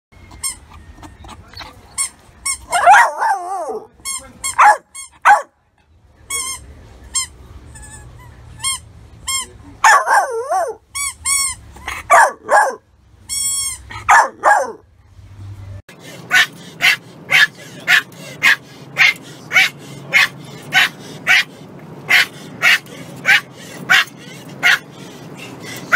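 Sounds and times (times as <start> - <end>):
puppy barking and yipping: 0.3 - 3.9, 4.5 - 5.5, 9.8 - 10.9, 11.5 - 12.8, 13.7 - 14.8, 16.3 - 25.9
puppy whining and howling: 2.7 - 3.9, 10.1 - 10.8.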